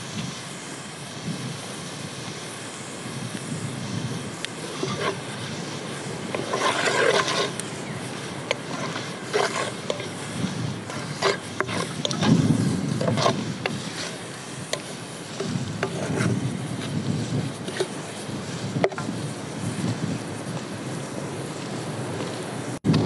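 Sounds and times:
wooden spoon scraping metal pan: 0:04.6 - 0:19.1.

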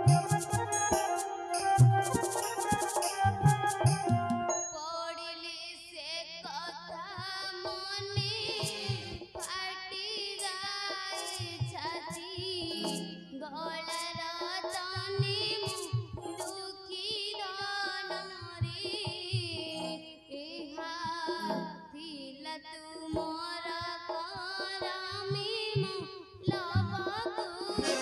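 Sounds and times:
drum accompaniment: 0:00.0 - 0:04.7, 0:07.0 - 0:13.0, 0:13.8 - 0:19.7, 0:23.2 - 0:28.0
high voice singing: 0:00.0 - 0:09.6, 0:27.7 - 0:28.0.

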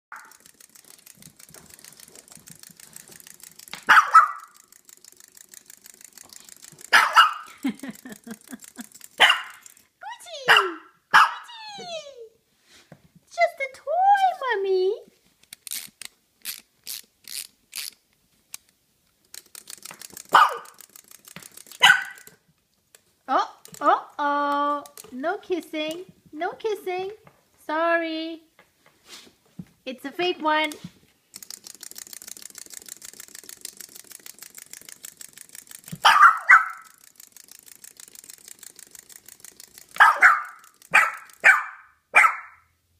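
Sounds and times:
quick clicking: 0:00.1 - 0:10.0, 0:15.4 - 0:23.9, 0:30.6 - 0:41.6
small dog barking: 0:03.9 - 0:04.6, 0:06.9 - 0:07.5, 0:09.2 - 0:09.6, 0:10.4 - 0:11.5, 0:20.3 - 0:20.8, 0:21.8 - 0:22.3, 0:36.0 - 0:36.9, 0:40.0 - 0:42.6
short breathy puffs: 0:28.9 - 0:29.4.

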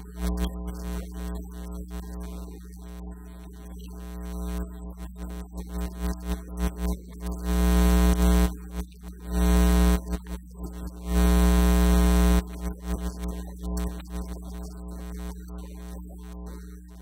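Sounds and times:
electrical mains hum and buzz: 0:00.0 - 0:17.0.

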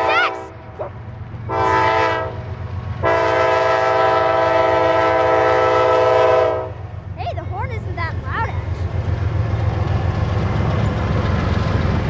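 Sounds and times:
freight train rumble: 0:00.0 - 0:12.0
locomotive air horn blasts: 0:01.5 - 0:06.8.

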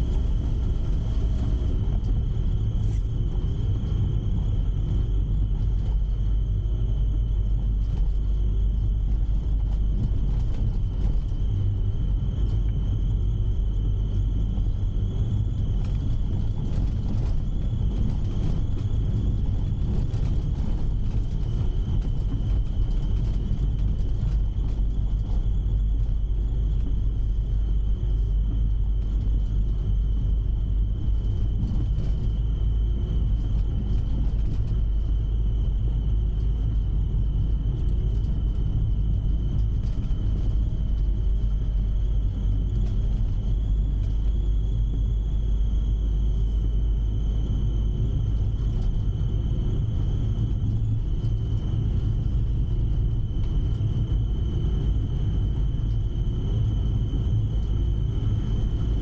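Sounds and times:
engine and road rumble: 0:00.0 - 0:59.0
high-pitched whine: 0:00.0 - 0:59.0.

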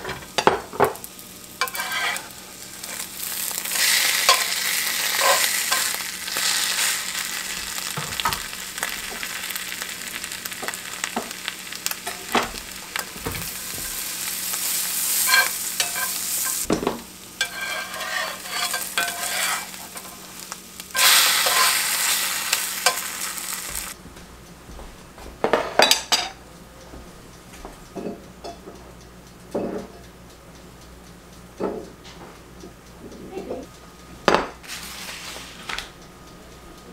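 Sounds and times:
eggs and onions sizzling: 0:00.0 - 0:24.0, 0:34.1 - 0:36.0
spatula scraping and tapping: 0:01.6 - 0:03.1, 0:03.7 - 0:06.9, 0:15.1 - 0:20.2.

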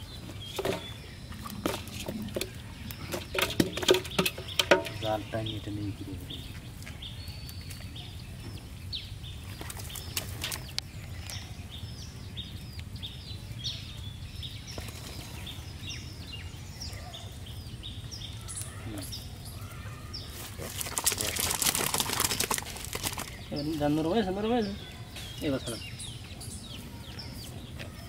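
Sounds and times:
small birds chirping: 0:00.0 - 0:28.0
fish rustling in wet net: 0:20.3 - 0:23.5.

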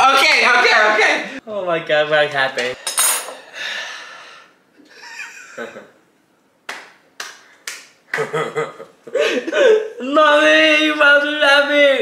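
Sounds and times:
hand claps: 0:06.6 - 0:08.5.

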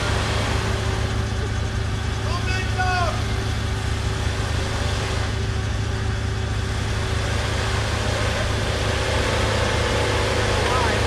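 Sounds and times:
vehicle engine low hum: 0:00.0 - 0:11.0.

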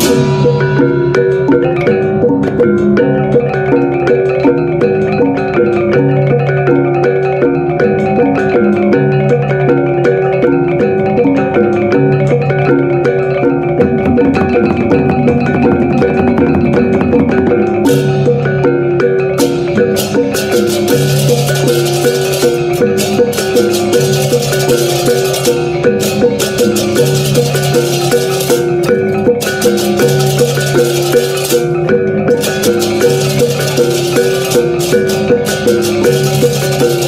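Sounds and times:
mallet percussion melody: 0:00.0 - 0:37.0
repeating bass line: 0:11.9 - 0:28.0.

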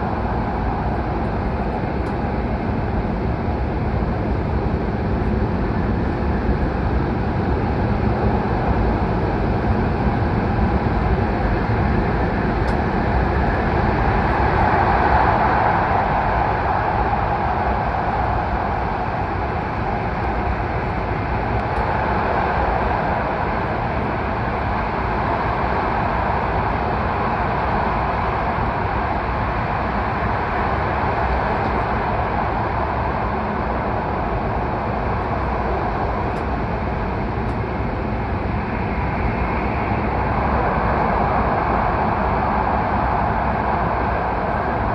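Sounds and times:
rushing air: 0:12.5 - 0:44.9.

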